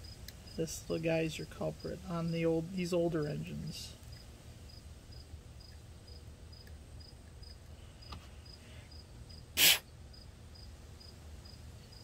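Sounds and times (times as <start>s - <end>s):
cricket chirping: 4.1s - 12.0s
loud noise burst: 9.6s - 9.8s.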